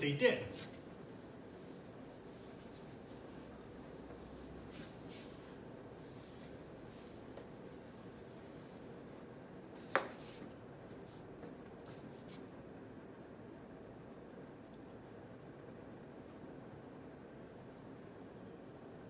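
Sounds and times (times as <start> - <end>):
eraser rubbing on whiteboard: 0.4 - 11.3.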